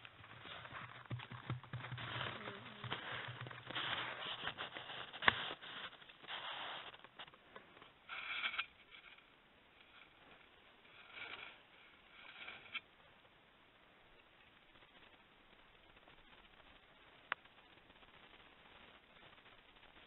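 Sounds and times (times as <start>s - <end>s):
hair scraping on plastic: 0.2s - 7.4s.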